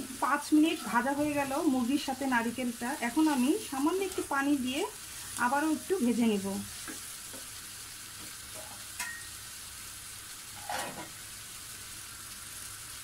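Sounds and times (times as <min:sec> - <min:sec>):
frying pan sizzle: 0:00.0 - 0:13.0
spatula scraping pan: 0:00.5 - 0:01.6, 0:10.5 - 0:11.2
spatula knocking pan: 0:06.8 - 0:07.5.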